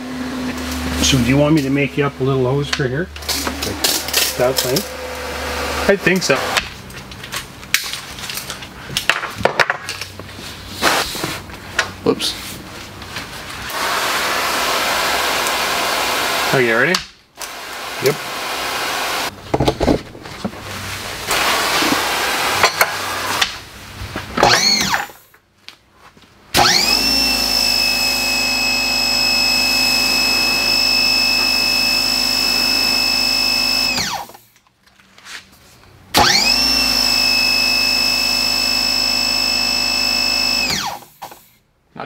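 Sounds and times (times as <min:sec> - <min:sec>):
pressure washer motor and pump: 0:00.0 - 0:06.7, 0:13.6 - 0:16.8, 0:17.4 - 0:19.3, 0:21.1 - 0:23.6, 0:24.4 - 0:25.2, 0:26.6 - 0:34.5, 0:36.1 - 0:41.5.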